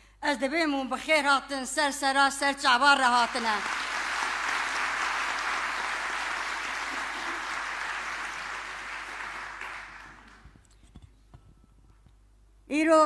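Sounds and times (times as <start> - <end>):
audience applause: 3.3 - 10.6.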